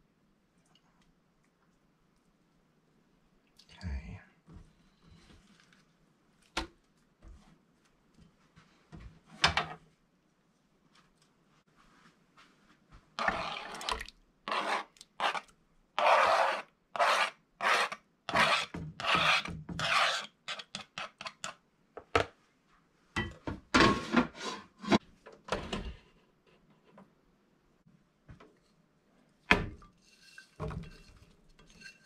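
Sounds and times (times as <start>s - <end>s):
knife scraping plastic cutting board: 14.5s - 21.5s.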